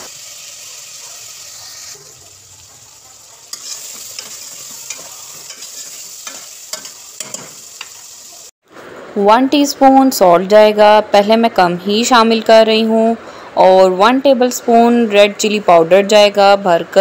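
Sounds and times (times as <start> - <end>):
vegetables sizzling in hot oil: 0.0 - 8.6
metal spoon clinking against pot: 3.5 - 8.0.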